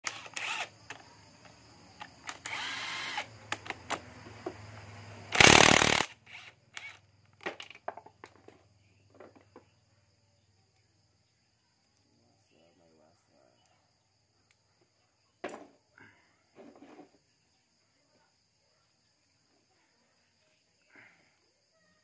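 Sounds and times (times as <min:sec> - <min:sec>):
impact wrench whir: 0:00.0 - 0:01.1, 0:02.1 - 0:04.0, 0:05.3 - 0:07.0
impact wrench hammering: 0:05.3 - 0:06.1
light metallic clinks: 0:07.4 - 0:08.8.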